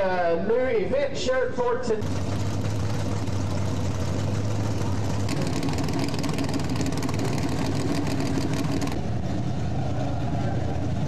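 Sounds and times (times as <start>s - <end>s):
race car engines rumbling: 0.0s - 11.0s
rapid engine crackle: 2.0s - 11.0s.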